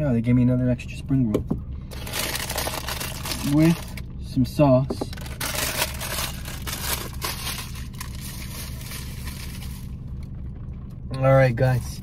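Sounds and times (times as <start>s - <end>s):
steady low hum: 0.0s - 12.0s
takeout bag rustling: 1.9s - 4.0s, 5.1s - 9.9s.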